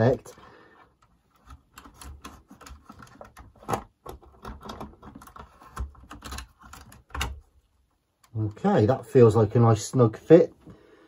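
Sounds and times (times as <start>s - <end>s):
plastic parts clicking and tapping: 0.1s - 7.5s.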